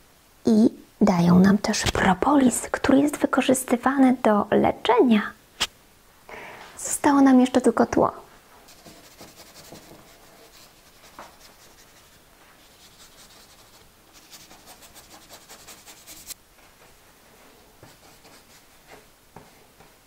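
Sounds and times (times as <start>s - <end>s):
paintbrush scratching on paper: 8.7s - 16.4s, 17.8s - 19.0s.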